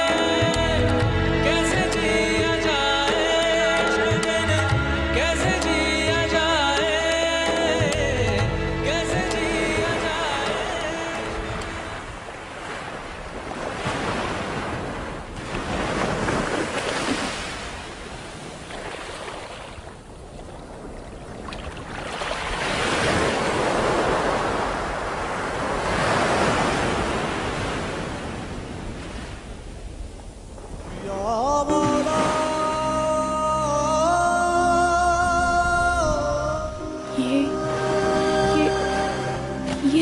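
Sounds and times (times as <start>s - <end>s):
wind: 0.0s - 40.0s
river water rushing: 9.0s - 28.8s, 31.7s - 33.3s, 36.8s - 40.0s.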